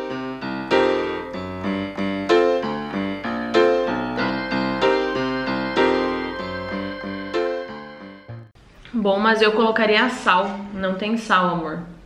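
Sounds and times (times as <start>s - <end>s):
piano melody: 0.0s - 8.6s.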